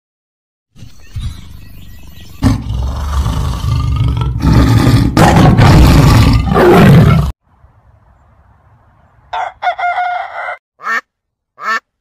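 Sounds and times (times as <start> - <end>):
tiger growling and roaring: 2.3 - 7.4.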